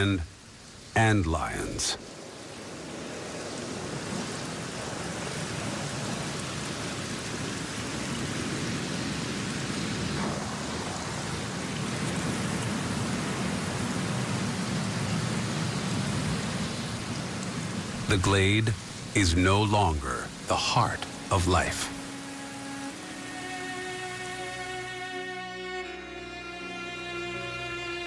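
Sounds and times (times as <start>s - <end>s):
steady rain: 0.0s - 28.0s.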